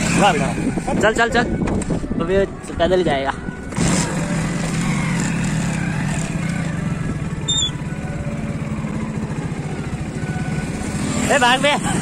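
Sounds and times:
motorcycle engine at low speed: 0.0s - 2.7s, 3.4s - 12.0s.

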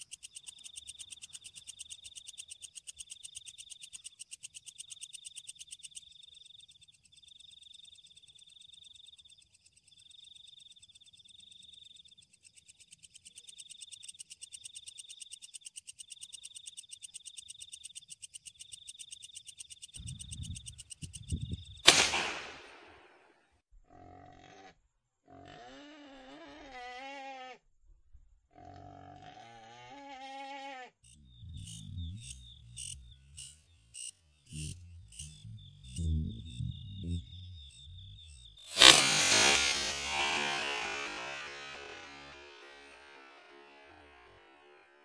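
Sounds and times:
frogs and insects trilling: 0.0s - 21.8s, 31.0s - 39.0s
gunshot: 21.8s - 23.2s, 38.7s - 40.7s.

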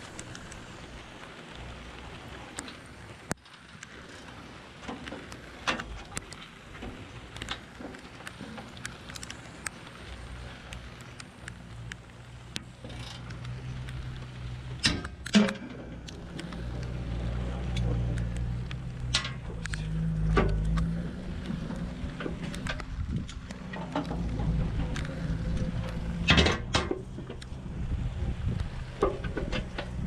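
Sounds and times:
low rumble: 8.4s - 30.0s.

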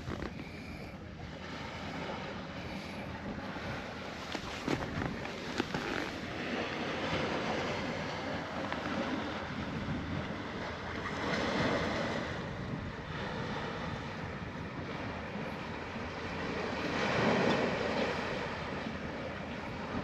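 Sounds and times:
sea surf rushing: 0.0s - 20.0s
wind buffeting microphone: 0.0s - 20.0s.

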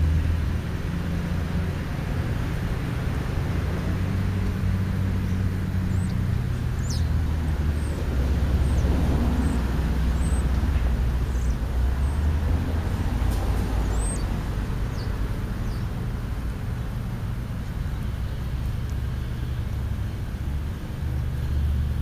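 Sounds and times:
engine humming: 0.0s - 22.0s
small birds chirping: 4.4s - 16.4s.

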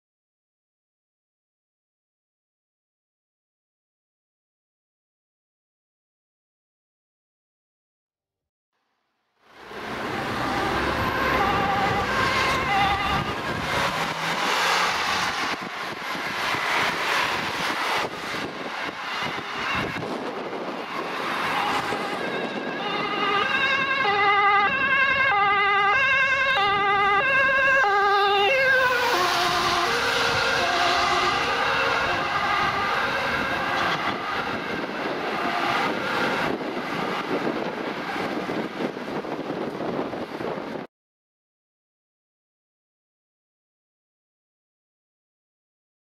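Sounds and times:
passing road traffic: 9.5s - 40.9s
ambulance two-tone siren: 9.6s - 38.3s.

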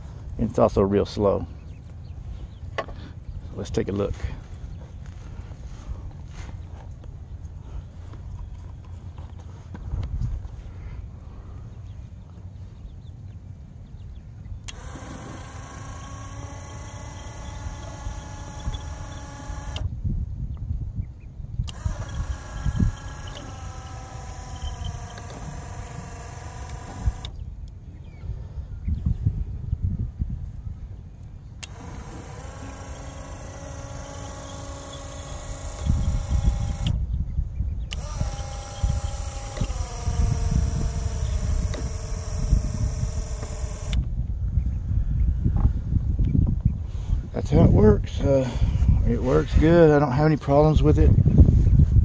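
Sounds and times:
electric motor whine: 14.6s - 20.0s, 21.6s - 27.5s, 31.6s - 37.2s, 37.8s - 44.2s.

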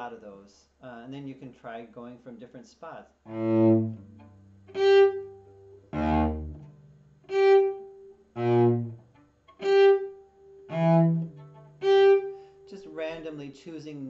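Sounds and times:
cello bowed notes: 3.3s - 12.6s.

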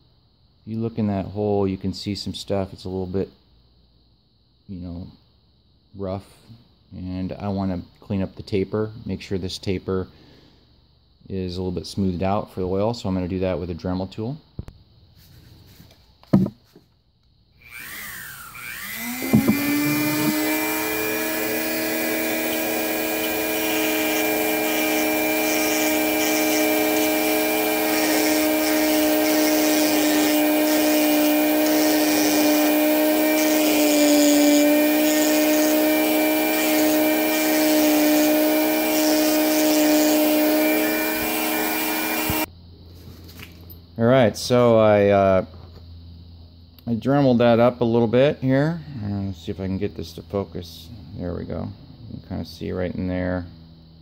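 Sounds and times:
rotary tool grinding metal: 17.6s - 42.5s.

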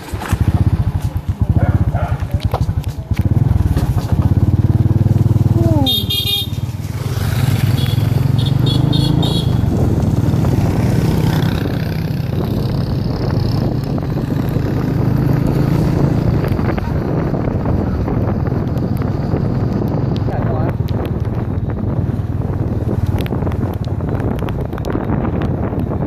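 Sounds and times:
motorcycle engine running: 0.0s - 26.0s
road noise: 0.0s - 26.0s.

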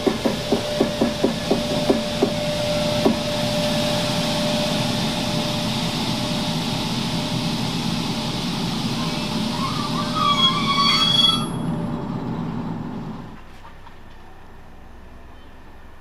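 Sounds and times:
electric locomotive humming: 0.0s - 16.0s
faint wheel squeal: 9.0s - 11.8s, 15.3s - 15.7s.

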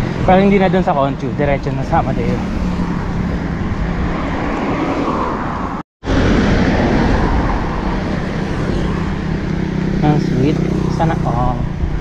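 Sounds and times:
road traffic: 0.0s - 12.0s
wind on microphone: 2.5s - 10.1s.

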